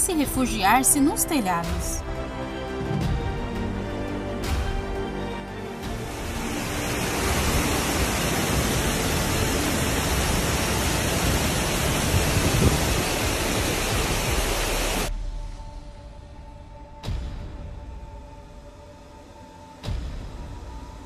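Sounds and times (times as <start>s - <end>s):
floodwater rushing down rocks: 5.8s - 15.1s.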